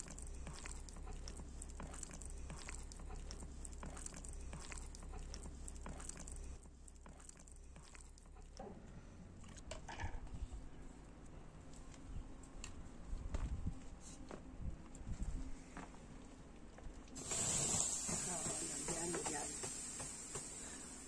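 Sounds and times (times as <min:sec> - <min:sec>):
hands kneading dough: 0:00.0 - 0:08.6.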